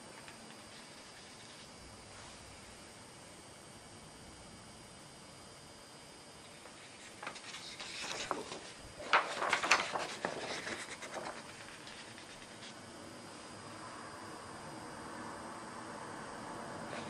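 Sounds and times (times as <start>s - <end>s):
paper rustling and scraping: 6.6s - 12.8s.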